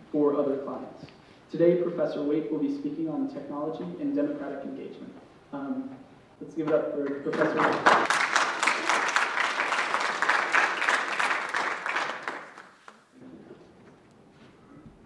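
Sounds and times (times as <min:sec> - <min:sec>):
audience applauding: 0:07.3 - 0:13.1.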